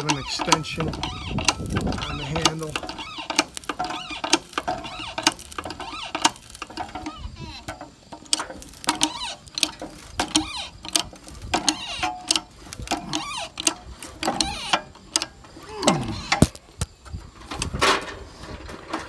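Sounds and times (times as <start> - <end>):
bottle jack pumping clicks and creaks: 0.0 - 19.0
man grunting: 15.6 - 16.3.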